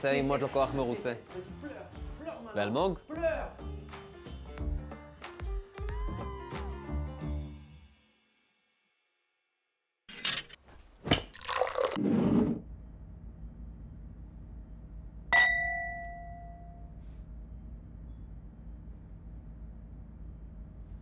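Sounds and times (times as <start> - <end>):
low room hum: 12.6 - 21.0
beer glasses clinking: 15.4 - 16.6.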